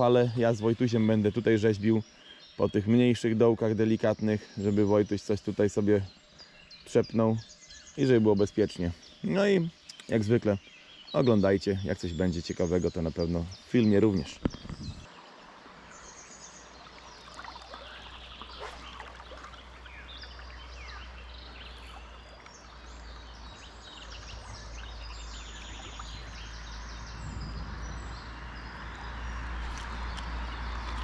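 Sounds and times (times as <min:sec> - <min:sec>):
birds chirping and trilling: 0:00.0 - 0:31.0
river water rushing: 0:15.1 - 0:27.1
low rumble: 0:22.9 - 0:31.0.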